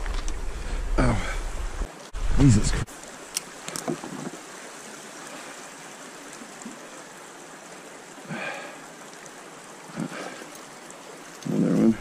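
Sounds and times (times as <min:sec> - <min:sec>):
stream water running: 0:00.0 - 0:12.0.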